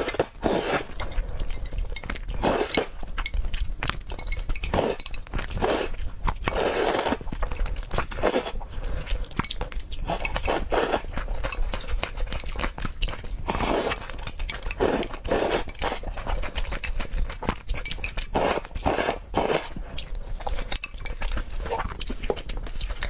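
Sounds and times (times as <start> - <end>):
noodles slurped: 0.0 - 1.6, 2.3 - 3.0, 4.6 - 9.4, 10.0 - 12.1, 13.4 - 16.6, 18.2 - 20.7
wet chewing and mouth clicks: 0.0 - 23.0.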